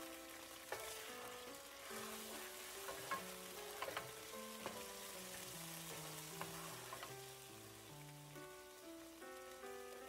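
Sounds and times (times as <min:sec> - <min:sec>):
oil sizzling in a frying pan: 0:00.0 - 0:10.0
soft background music: 0:00.0 - 0:10.0
wooden spoon tapping a pan: 0:02.0 - 0:05.2, 0:05.9 - 0:07.2.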